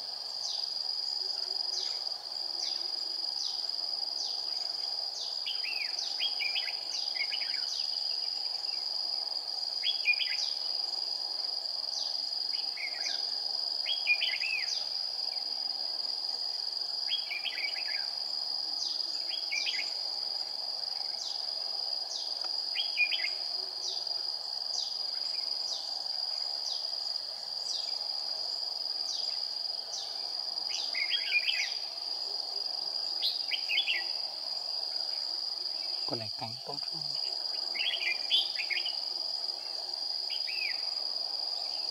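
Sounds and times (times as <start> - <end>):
high-pitched insect drone: 21.0 - 41.9.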